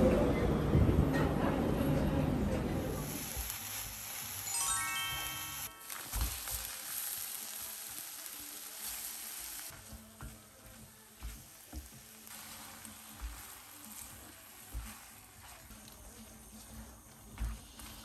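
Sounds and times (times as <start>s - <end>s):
food sizzling in a frying pan: 2.8s - 18.0s
spatula scraping a pan: 11.2s - 18.0s.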